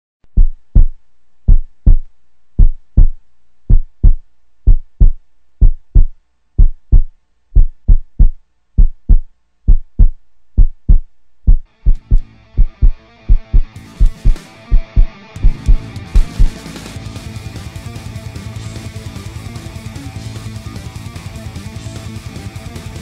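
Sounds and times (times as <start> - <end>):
heartbeat thumps: 0.3 - 16.6.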